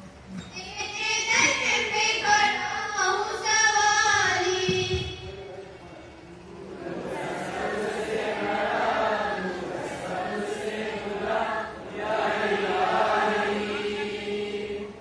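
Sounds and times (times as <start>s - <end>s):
children chanting in unison: 6.8s - 15.0s.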